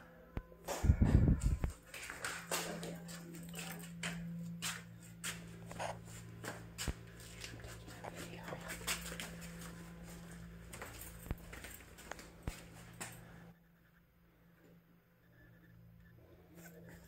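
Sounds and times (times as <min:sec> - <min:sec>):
steady low hum: 0:00.0 - 0:17.0
footsteps: 0:00.7 - 0:13.4.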